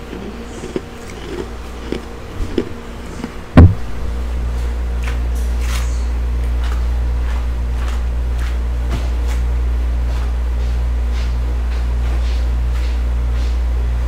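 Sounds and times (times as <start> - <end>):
steady low hum: 0.0 - 14.0
microphone thump on hard surface: 3.6 - 4.4.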